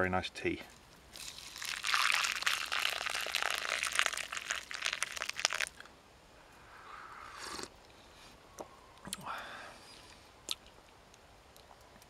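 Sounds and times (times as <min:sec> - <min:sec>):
dry plants crumpled by hand: 0:01.1 - 0:05.7.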